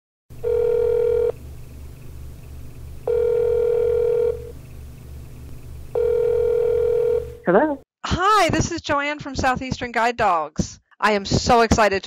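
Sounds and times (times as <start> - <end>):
telephone ringing tone: 0.4 - 1.5, 3.0 - 4.6, 5.9 - 7.4.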